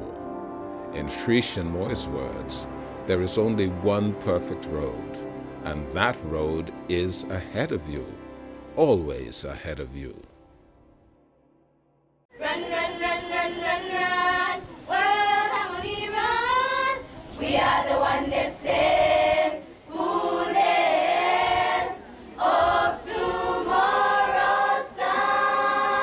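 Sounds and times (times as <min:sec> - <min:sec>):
choir singing: 0:12.3 - 0:26.0.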